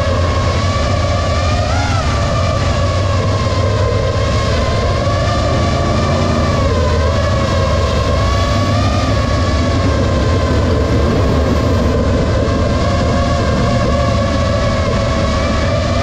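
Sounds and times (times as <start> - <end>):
drone motors whining: 0.0 - 16.0
race car engines rumbling: 0.0 - 16.0.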